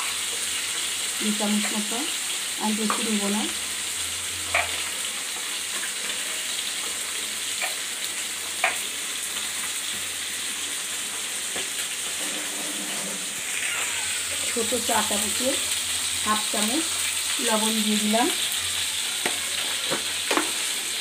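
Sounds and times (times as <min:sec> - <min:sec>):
food sizzling in oil: 0:00.0 - 0:21.0.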